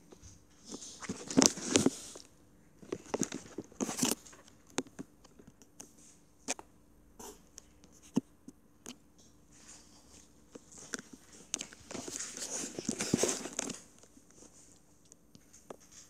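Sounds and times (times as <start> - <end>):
cat crunching dry kibble: 0.6 - 5.8, 10.5 - 16.0.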